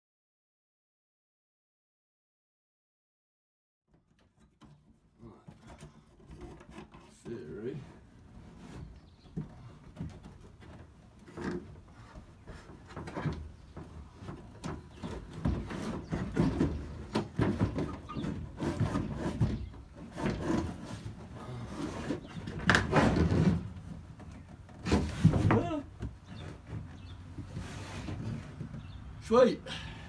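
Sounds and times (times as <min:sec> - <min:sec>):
plastic trim creaking and knocking: 0:03.9 - 0:29.1.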